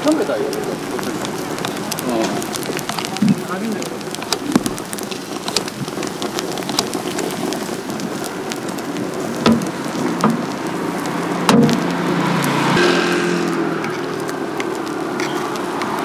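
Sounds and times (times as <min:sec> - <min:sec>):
grill sizzling and crackling: 0:00.0 - 0:16.0
sharp knocks: 0:09.4 - 0:10.4, 0:11.5 - 0:11.9.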